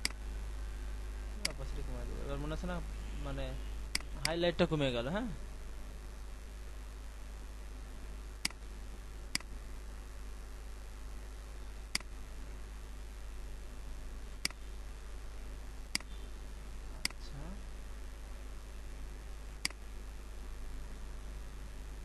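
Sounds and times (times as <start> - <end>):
steady low hum: 0.0 - 22.0
computer mouse clicks: 15.9 - 16.1.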